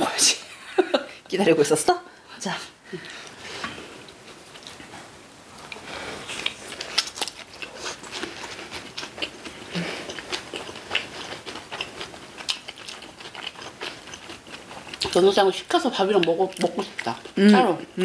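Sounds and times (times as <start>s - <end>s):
chewing: 3.1s - 18.0s.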